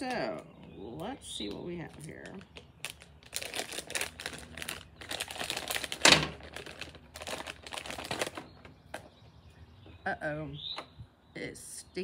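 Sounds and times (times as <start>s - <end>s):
packaging crinkling and rustling: 0.1s - 9.2s.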